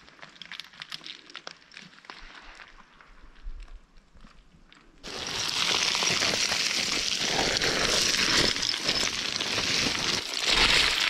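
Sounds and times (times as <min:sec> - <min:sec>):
scree stones crunching under boots: 0:05.0 - 0:11.0.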